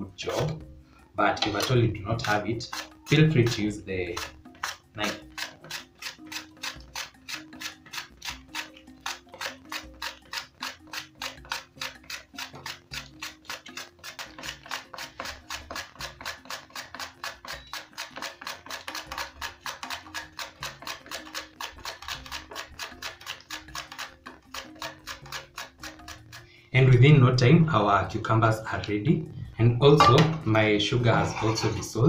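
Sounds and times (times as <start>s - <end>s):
background music: 0.0s - 32.0s
cucumber rasping on grater: 1.5s - 26.4s.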